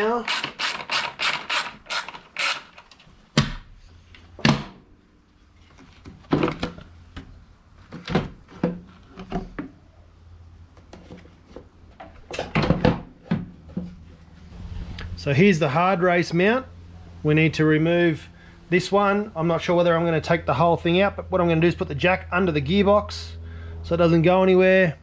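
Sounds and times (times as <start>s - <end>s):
hand ratchet clicking: 0.0s - 2.9s.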